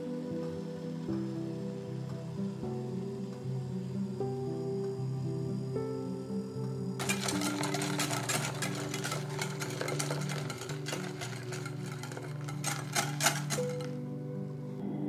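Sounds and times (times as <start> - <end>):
soft background music: 0.0 - 15.0
milk pouring: 7.0 - 14.0
whisk clattering in glass bowl: 7.0 - 14.0.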